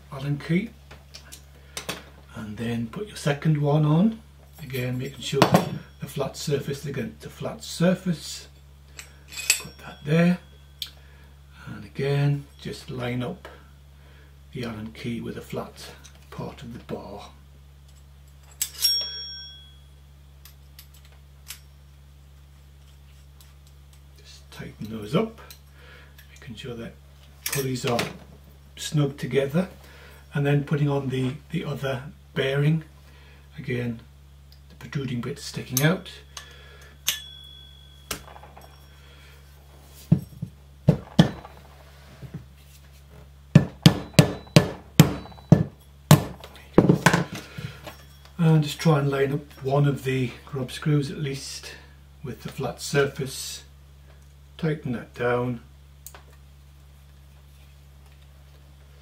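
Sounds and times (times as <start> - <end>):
metal parts clinking: 8.9 - 10.1, 17.9 - 19.7, 35.8 - 41.8
mallet knocking on metal bearing: 43.6 - 47.2.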